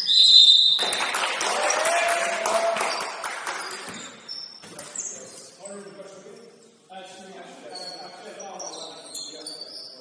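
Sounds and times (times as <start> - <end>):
crowd clapping and cheering: 0.7 - 3.9.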